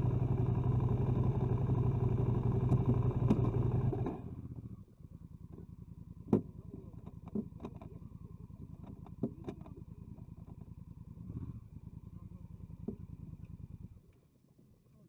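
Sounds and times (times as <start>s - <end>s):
motorcycle engine idling: 0.0s - 14.1s
sharp clicks and knocks: 6.3s - 8.0s, 8.8s - 10.7s.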